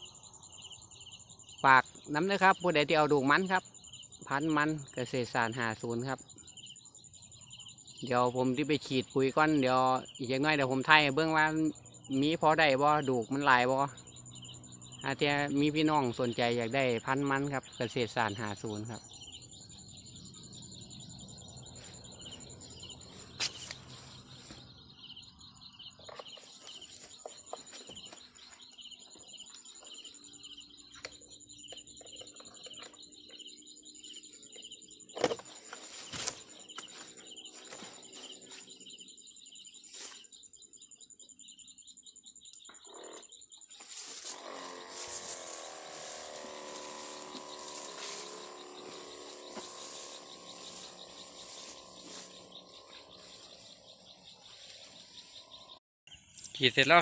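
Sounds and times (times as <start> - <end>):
birds chirping: 0.0 - 57.0
steady high-pitched trill: 44.4 - 55.8.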